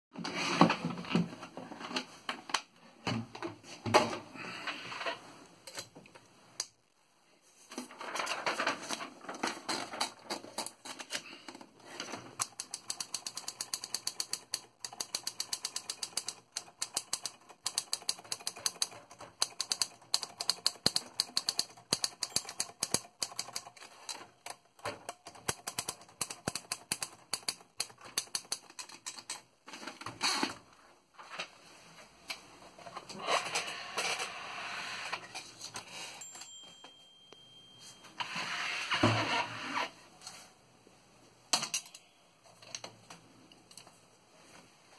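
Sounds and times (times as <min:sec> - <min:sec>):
typewriter keys clicking: 0:12.4 - 0:23.8, 0:25.1 - 0:29.4.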